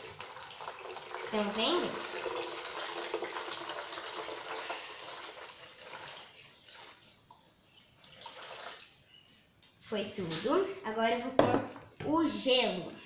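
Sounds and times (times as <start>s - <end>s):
water pouring into plastic ball: 0.0s - 7.4s, 8.0s - 8.9s.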